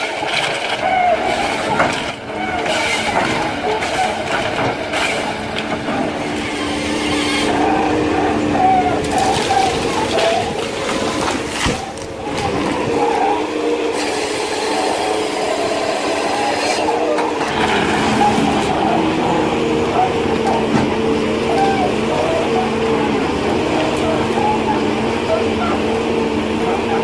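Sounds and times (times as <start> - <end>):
harvester engine and hydraulics: 0.0 - 27.0
saw cutting log: 0.0 - 27.0.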